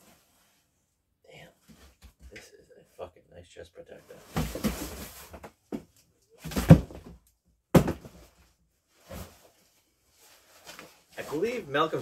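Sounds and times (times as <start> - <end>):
rustling and scraping against cardboard: 4.1 - 7.2, 7.9 - 11.6.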